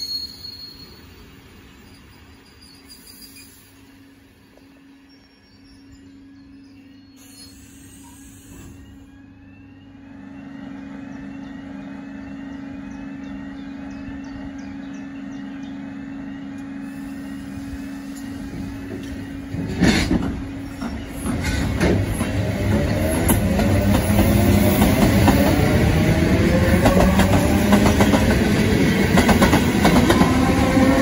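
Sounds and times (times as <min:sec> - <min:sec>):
train electrical hum: 0:00.0 - 0:31.0
train wheels clattering over rail joints: 0:18.2 - 0:25.6.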